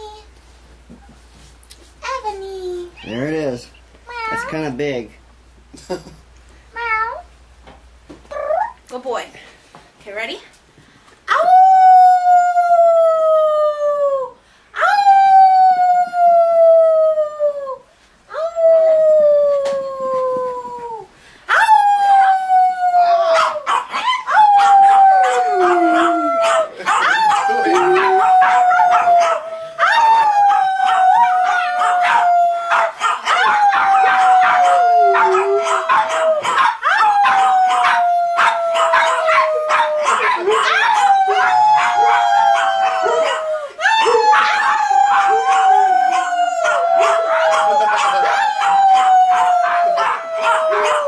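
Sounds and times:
large dog howling: 0:18.4 - 0:51.0.

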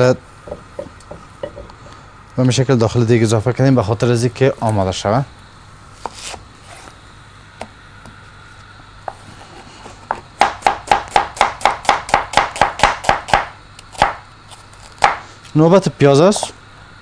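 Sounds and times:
knife chopping on wooden board: 0:10.1 - 0:14.2, 0:15.0 - 0:15.2.

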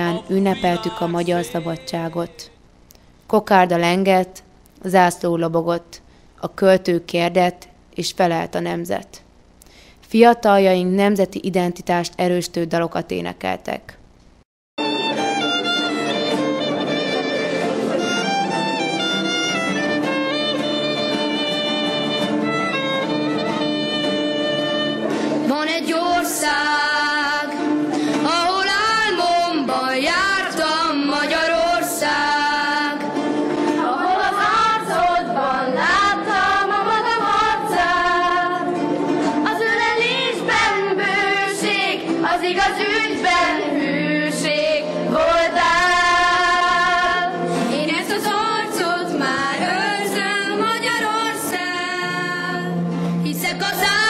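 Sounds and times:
violin melody: 0:14.8 - 0:25.3
guitar accompaniment: 0:14.8 - 0:54.0
children singing together: 0:24.5 - 0:52.7.

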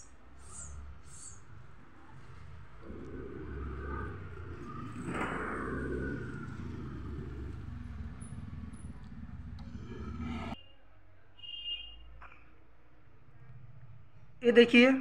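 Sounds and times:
motor vehicle passing: 0:00.0 - 0:10.6
steady low traffic rumble: 0:00.0 - 0:10.6.

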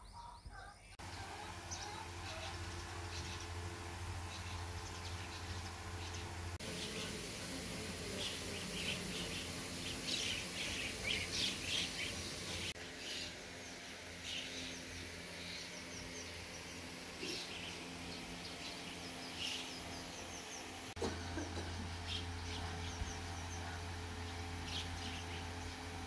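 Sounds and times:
small birds chirping: 0:00.0 - 0:26.0
steady low hum: 0:00.9 - 0:26.0.

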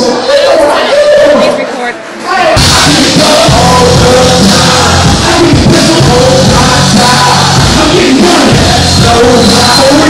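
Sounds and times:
loud music with sustained bass: 0:02.6 - 0:10.0
person singing: 0:02.6 - 0:10.0.

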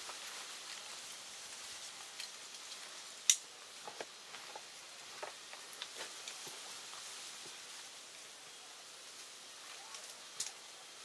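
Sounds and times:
small clicks and rustles of straps: 0:00.0 - 0:07.7.

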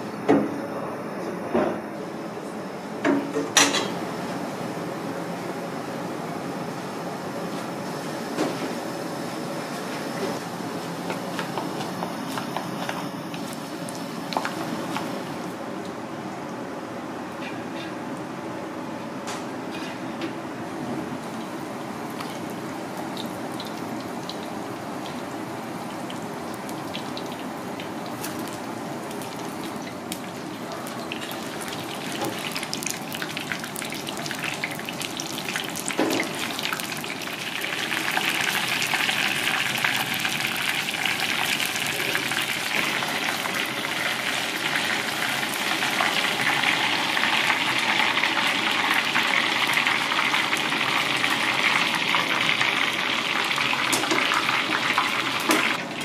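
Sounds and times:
oil sizzling and crackling: 0:21.3 - 0:56.0.

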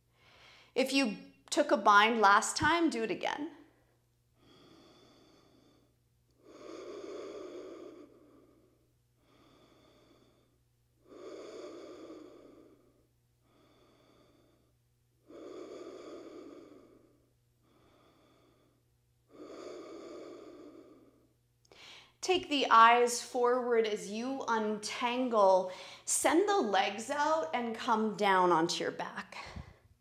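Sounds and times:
woman breathing deeply: 0:00.0 - 0:00.8, 0:03.8 - 0:22.2, 0:25.6 - 0:26.1.

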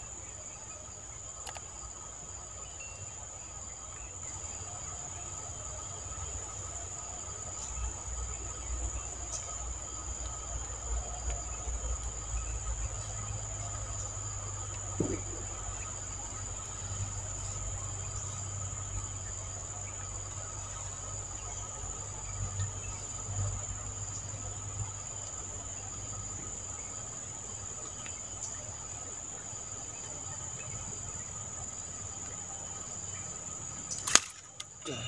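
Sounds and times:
insects calling high pitch: 0:00.0 - 0:35.0.

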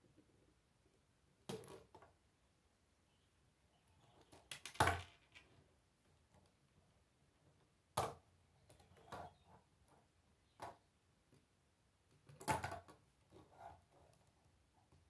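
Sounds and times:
plastic pieces clicking together: 0:04.3 - 0:05.5.

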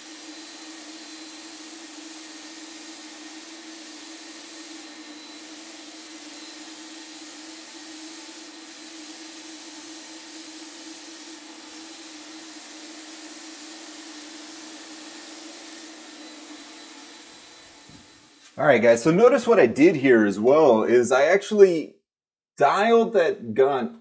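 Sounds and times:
spray gun hissing: 0:00.0 - 0:18.6
turbine whine and air rush: 0:00.0 - 0:18.6.

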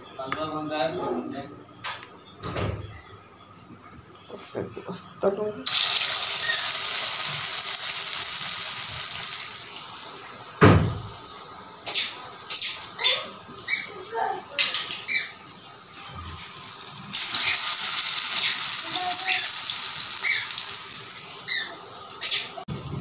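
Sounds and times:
food sizzling in hot oil: 0:05.6 - 0:13.9, 0:15.9 - 0:22.6
thump: 0:10.6 - 0:11.1.

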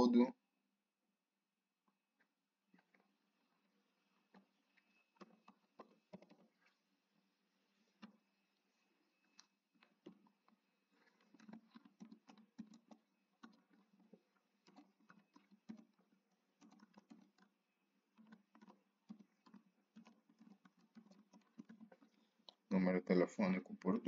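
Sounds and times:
keyboard typing: 0:11.0 - 0:17.5, 0:18.1 - 0:22.2.

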